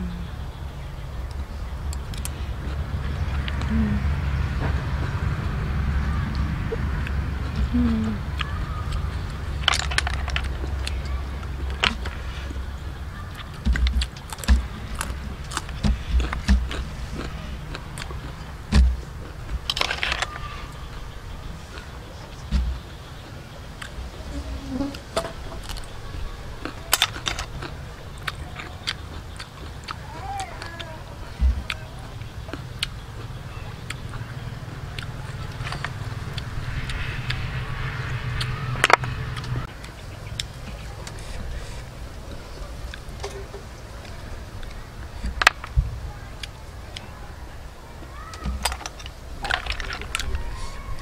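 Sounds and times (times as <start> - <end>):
low steady hum: 0.0 - 51.0
chewing: 1.2 - 47.2, 48.0 - 51.0
crunching bites of raw bean: 13.3 - 21.9.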